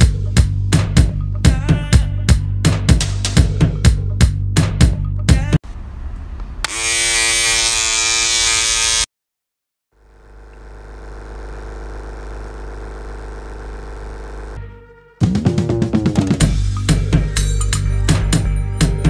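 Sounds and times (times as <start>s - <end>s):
massage gun high-pitched whine: 6.6s - 9.1s, 10.1s - 14.6s
massage gun low hum: 10.0s - 14.7s.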